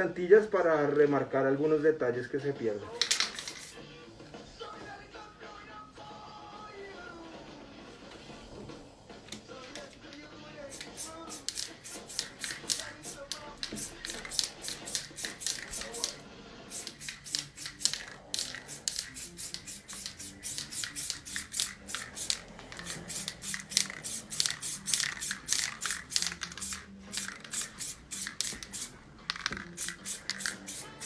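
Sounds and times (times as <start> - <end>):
spray can hissing: 3.0 - 3.8, 10.6 - 31.0.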